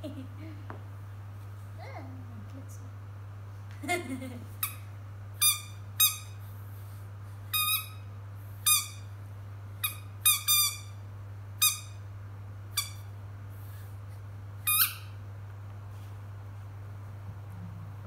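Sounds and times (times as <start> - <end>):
steady low hum: 0.0 - 18.0
dog toy squeaker squeaking: 5.4 - 6.4, 7.5 - 8.0, 8.6 - 9.1, 9.8 - 11.0, 11.6 - 12.0, 12.8 - 13.1, 14.6 - 15.1.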